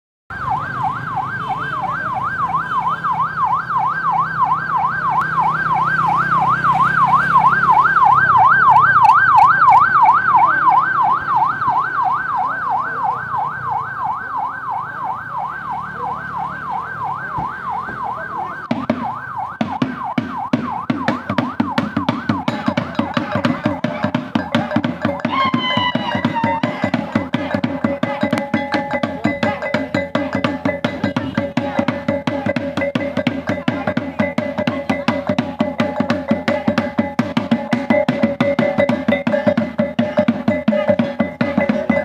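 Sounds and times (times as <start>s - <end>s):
electronic siren yelping: 0.3s - 42.0s
regular sharp knocks: 18.6s - 25.4s.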